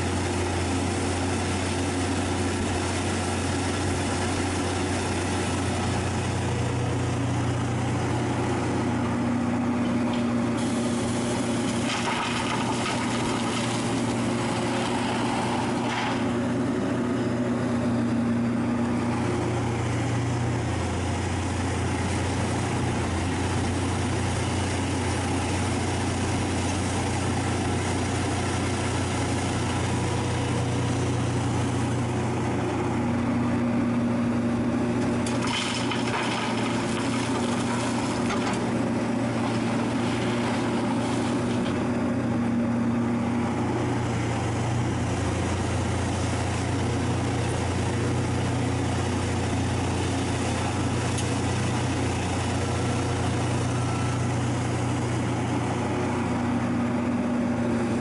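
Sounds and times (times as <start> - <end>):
excavator engine and hydraulics: 0.0 - 58.0
soil pouring into steel trailer: 8.0 - 16.8, 35.1 - 41.8.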